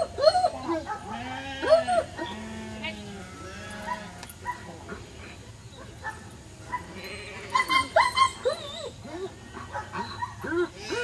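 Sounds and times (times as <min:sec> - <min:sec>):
dog barking: 0:00.8 - 0:01.2, 0:03.8 - 0:04.7, 0:09.6 - 0:10.6.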